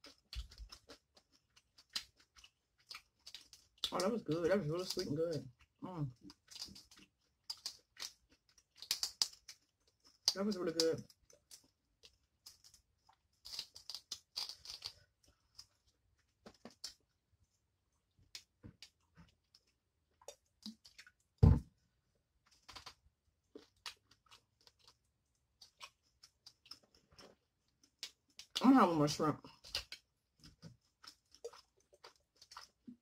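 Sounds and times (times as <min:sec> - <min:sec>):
shrimp shells crackling: 0:06.2 - 0:10.4, 0:11.0 - 0:15.7
loud low thump: 0:21.4 - 0:21.7
wet mouth clicks while chewing: 0:25.6 - 0:28.6, 0:29.5 - 0:33.0.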